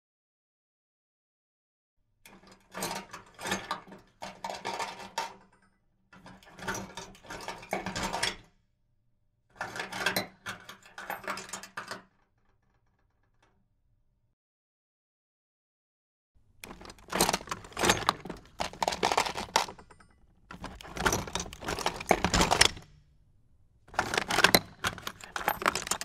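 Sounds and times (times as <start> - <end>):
metal tools clattering: 16.6 - 23.0, 23.9 - 26.0.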